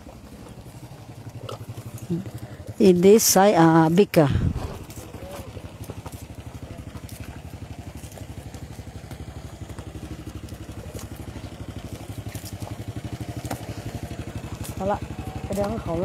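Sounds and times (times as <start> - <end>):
faint clicks and crackles: 0.0 - 3.2, 4.7 - 16.0
small engine idling: 0.0 - 16.0.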